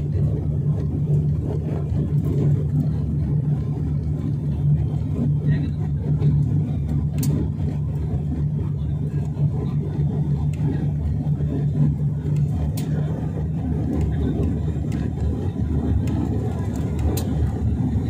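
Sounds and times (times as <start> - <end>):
jet engine roar: 0.0 - 18.0
low hum: 0.0 - 18.0
faint clicks: 16.0 - 17.3.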